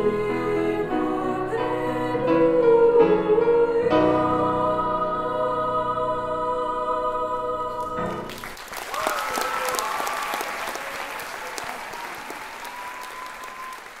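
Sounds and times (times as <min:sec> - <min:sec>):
choir singing held chord: 0:00.0 - 0:08.3
audience applause: 0:08.3 - 0:14.0
audience cheering: 0:08.3 - 0:14.0.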